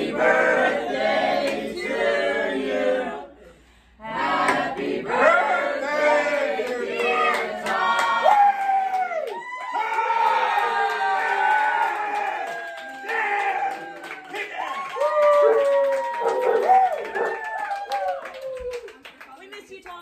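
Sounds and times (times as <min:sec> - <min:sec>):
group of people singing: 0:00.0 - 0:08.0
people cheering: 0:06.9 - 0:19.4
long held shout: 0:08.2 - 0:18.9.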